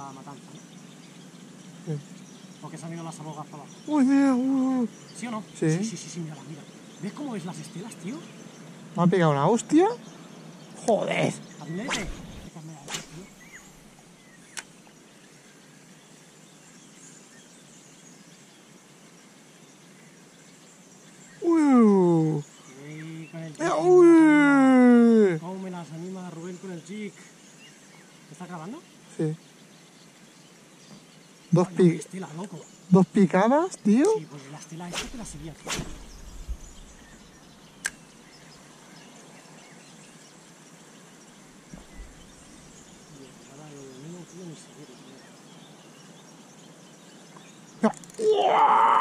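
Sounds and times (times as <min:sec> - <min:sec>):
faint steady hiss: 0:00.0 - 0:48.2
faint bird chirps: 0:00.0 - 0:49.0
sharp click: 0:11.9 - 0:13.4, 0:14.5 - 0:14.7, 0:35.0 - 0:36.9, 0:37.8 - 0:38.0.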